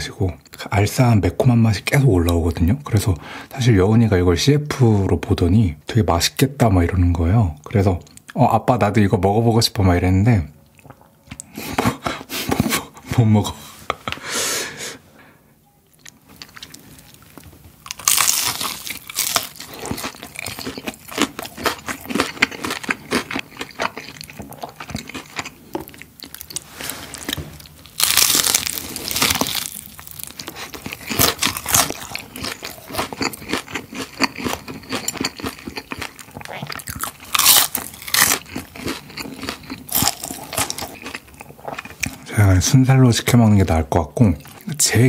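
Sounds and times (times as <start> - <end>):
crunchy chewing of fried chicken: 16.0 - 42.3.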